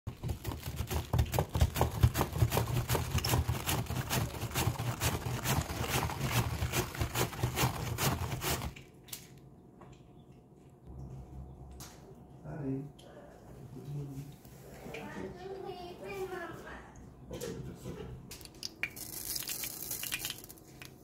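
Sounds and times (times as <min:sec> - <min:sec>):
cabbage slicing on mandoline: 0:01.8 - 0:08.7.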